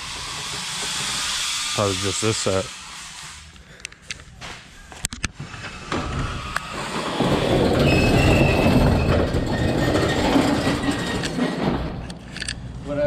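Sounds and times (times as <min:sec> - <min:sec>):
high squeal: 0:00.0 - 0:03.5, 0:05.6 - 0:11.4
metal roll-up door rattling: 0:06.7 - 0:12.0.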